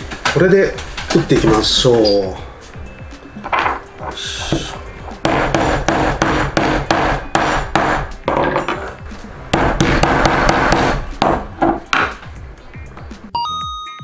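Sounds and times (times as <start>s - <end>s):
hammer striking rivet on anvil: 5.2s - 8.9s, 9.5s - 12.2s.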